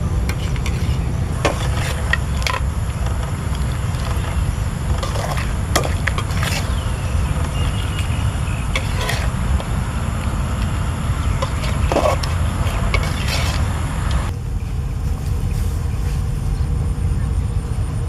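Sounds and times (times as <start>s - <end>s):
steady low rumble: 0.0s - 18.0s
metal spatula scraping a wok: 0.3s - 14.3s.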